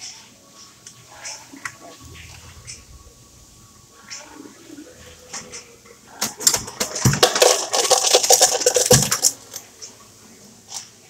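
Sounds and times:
ice cubes clattering into cup: 6.4 - 9.6.

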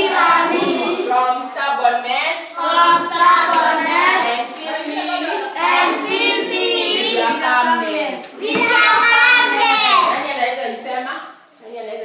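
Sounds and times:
children singing: 0.0 - 1.4, 2.6 - 10.2.

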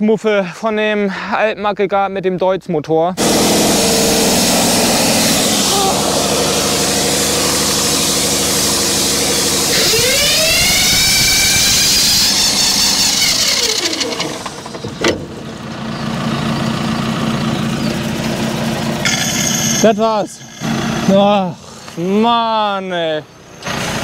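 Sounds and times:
pump engine running and racing: 3.2 - 21.8, 23.6 - 24.0.

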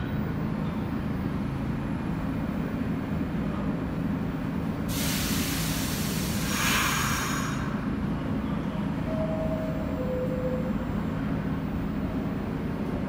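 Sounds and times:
subway train rumbling on tracks: 0.0 - 13.0
loud hiss of air: 4.9 - 7.9.

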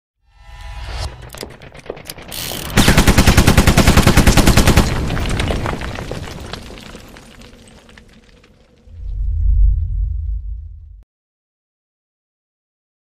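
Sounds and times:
rapid machine-gun fire: 2.6 - 5.8.

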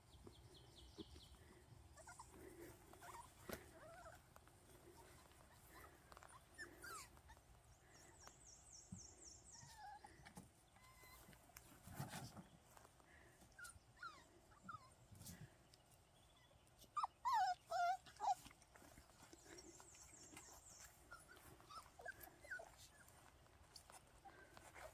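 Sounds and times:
puppies whimpering and squeaking: 1.0 - 12.3, 13.6 - 15.4, 16.4 - 24.9.

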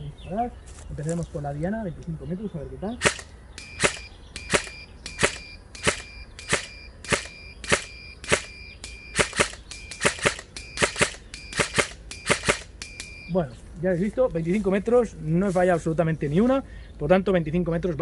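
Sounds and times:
airsoft rifle shots: 3.0 - 12.9.

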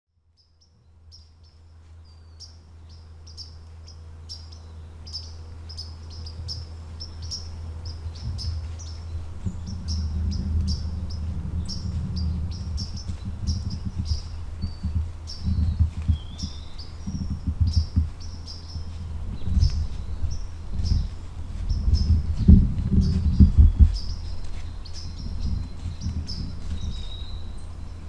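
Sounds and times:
birds chirping: 0.3 - 28.0
low rumble: 0.8 - 28.0.

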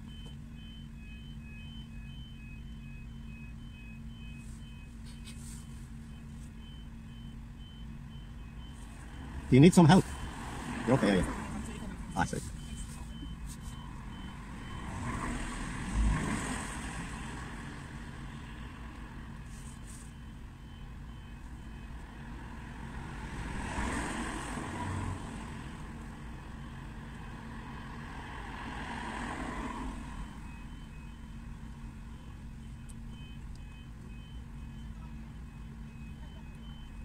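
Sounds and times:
faint electronic beeping: 0.0 - 16.1, 30.1 - 37.0
vehicles passing: 7.6 - 20.1, 21.1 - 33.6.

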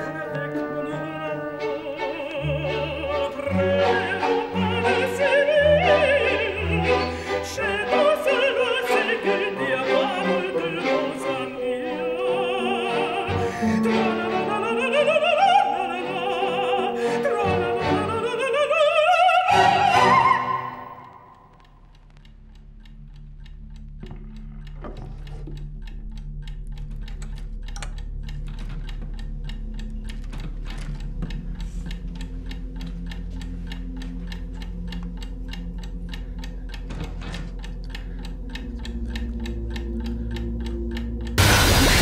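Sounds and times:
fast clock-like ticking: 21.0 - 42.0
low held drone: 37.8 - 42.0.

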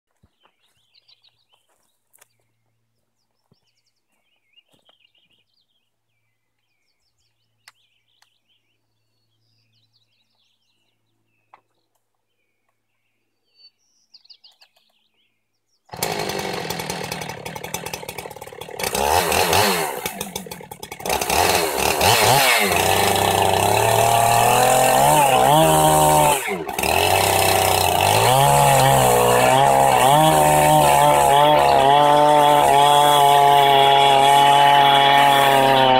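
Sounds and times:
chainsaw revving: 15.9 - 35.9.

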